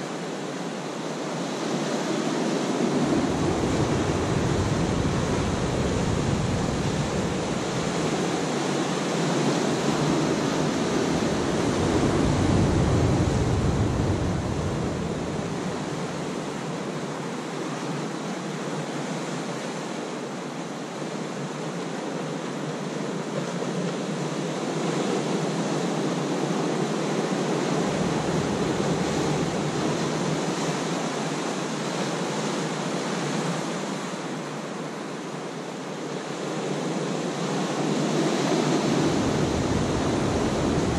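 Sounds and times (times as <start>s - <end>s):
ocean surf on rocky shore: 0.0s - 40.9s.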